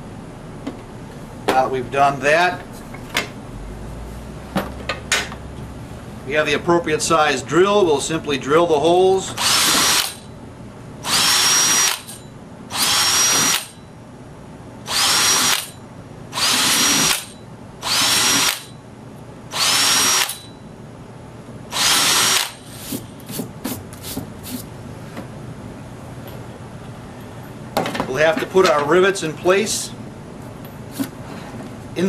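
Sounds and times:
power drill whining: 9.4 - 10.2, 11.0 - 13.8, 14.9 - 15.7, 16.4 - 18.7, 19.5 - 20.5, 21.7 - 22.9.

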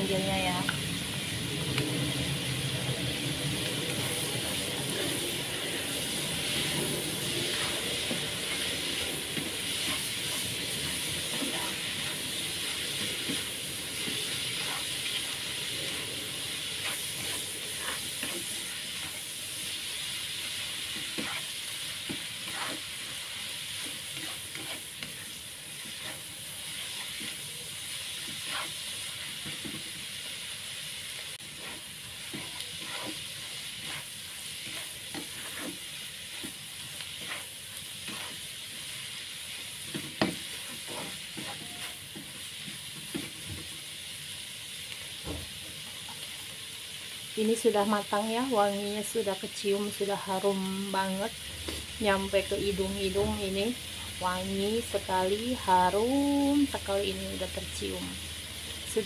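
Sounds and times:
food sizzling in a pan: 0.0 - 59.0
stirring clicks and scrapes: 6.5 - 30.0, 31.4 - 38.8, 39.8 - 43.4.

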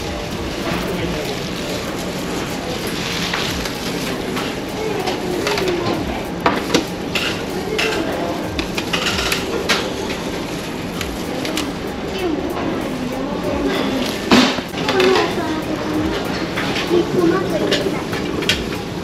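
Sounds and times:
steady background hum: 0.0 - 19.0
crockery and cutlery clattering: 2.6 - 11.5.

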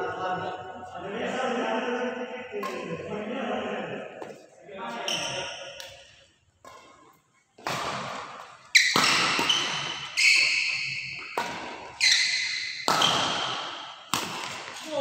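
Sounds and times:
rackets hitting shuttlecock: 2.6 - 3.2, 5.0 - 15.0.

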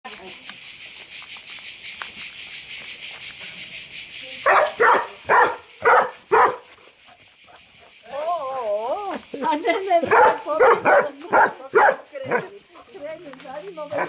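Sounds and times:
high pulsing insect chorus: 0.0 - 14.0
dog barking: 4.4 - 6.7, 10.0 - 12.5.

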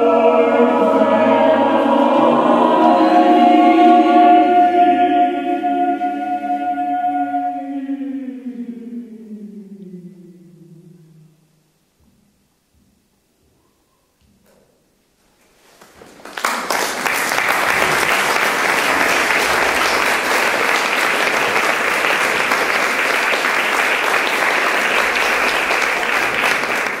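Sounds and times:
audience applauding: 15.8 - 27.0.

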